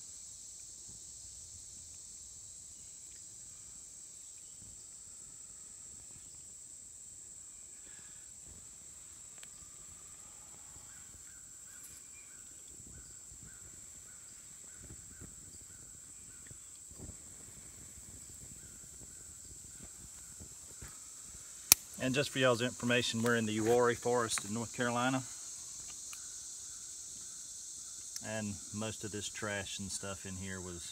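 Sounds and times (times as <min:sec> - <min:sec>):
insects droning: 0:00.0 - 0:30.9.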